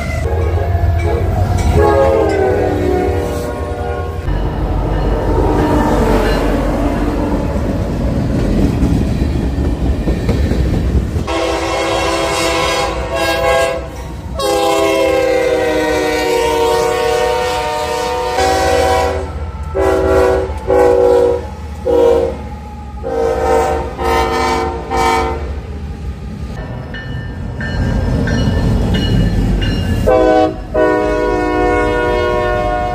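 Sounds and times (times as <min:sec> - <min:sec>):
locomotive air horn blasts: 0:00.0 - 0:04.3, 0:11.2 - 0:25.6, 0:30.0 - 0:32.9
locomotive rumbling on rails: 0:00.0 - 0:32.9.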